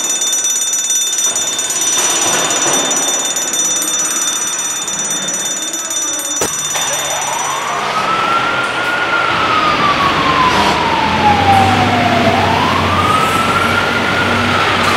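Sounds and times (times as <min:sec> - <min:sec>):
fire engine siren wailing: 0:06.4 - 0:14.9.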